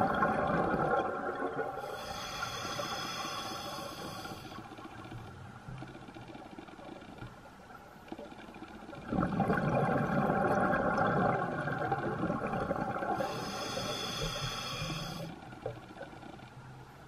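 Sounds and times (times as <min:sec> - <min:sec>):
exhaled bubbles underwater: 0:00.0 - 0:04.4, 0:08.9 - 0:16.1
regulator hiss: 0:01.8 - 0:04.7, 0:13.2 - 0:15.4.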